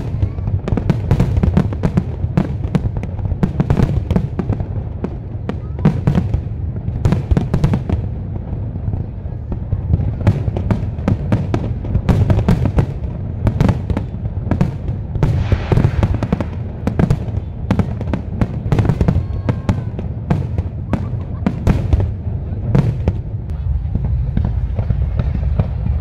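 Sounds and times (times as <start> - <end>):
fireworks crackling: 0.0 - 26.0
firework shells booming: 9.6 - 26.0.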